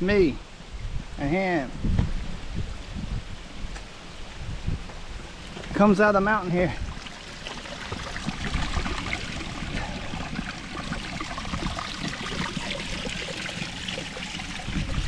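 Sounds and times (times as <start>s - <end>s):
spring water trickling over stones: 5.2s - 15.0s.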